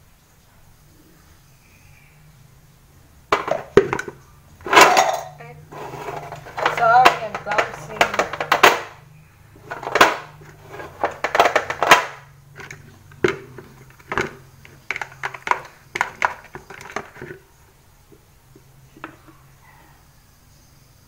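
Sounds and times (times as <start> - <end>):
utensils clattering: 3.4 - 9.0, 9.6 - 17.4.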